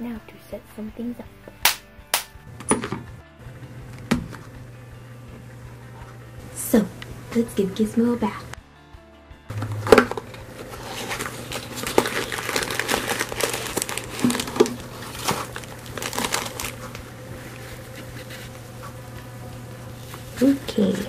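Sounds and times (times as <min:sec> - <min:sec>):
plastic bag crinkling: 0:09.5 - 0:18.6.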